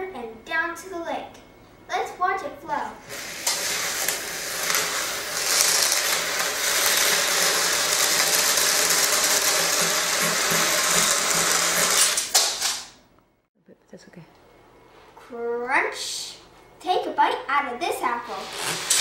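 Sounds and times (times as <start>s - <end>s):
beads rattling across a table: 3.6s - 12.9s.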